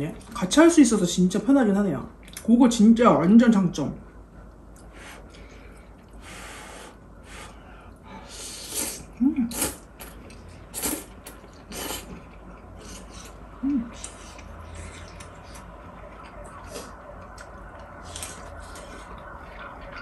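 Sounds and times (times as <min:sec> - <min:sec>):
noodles being slurped: 0:10.8 - 0:15.7
soft mouth noises: 0:12.7 - 0:15.7.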